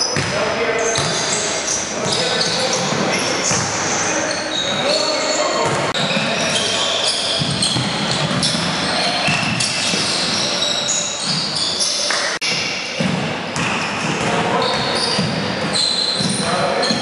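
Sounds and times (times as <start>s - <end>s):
sneakers squeaking on hardwood: 0.0s - 12.4s, 13.0s - 17.0s
indistinct voices echoing: 0.0s - 17.0s
basketball bouncing: 7.4s - 9.7s, 13.0s - 17.0s.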